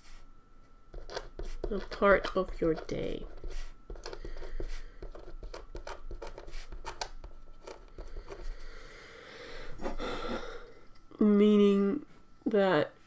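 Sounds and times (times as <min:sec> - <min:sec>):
pen scratching on paper: 0:00.9 - 0:08.4.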